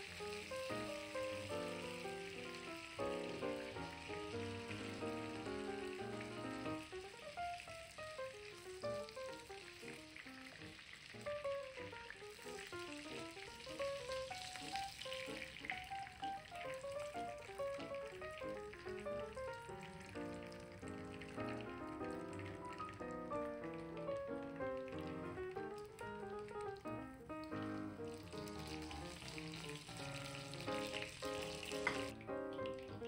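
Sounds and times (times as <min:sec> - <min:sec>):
background music melody: 0:00.0 - 0:33.0
chicken sizzling in oil: 0:00.0 - 0:33.0.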